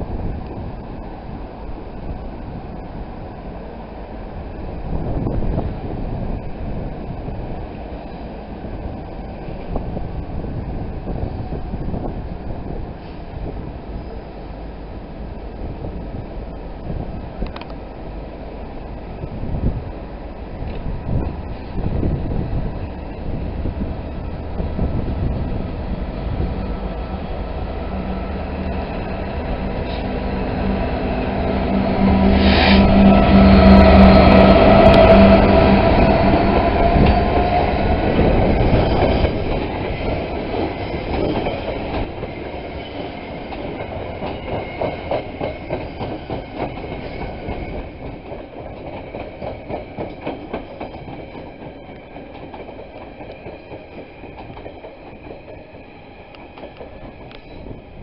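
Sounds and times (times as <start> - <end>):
diesel locomotive engine: 0.0 - 58.0
train wheels clicking over rail joints: 32.0 - 57.8.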